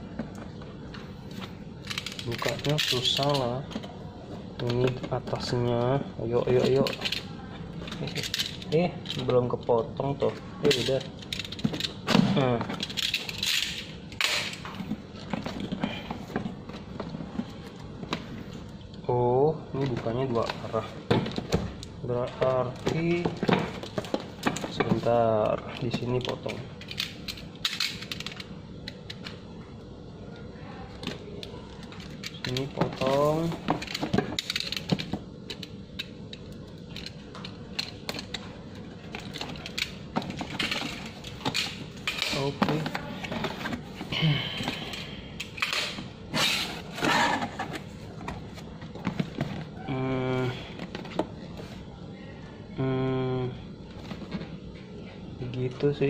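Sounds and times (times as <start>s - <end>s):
cardboard scraping and rustling: 46.3s - 49.7s.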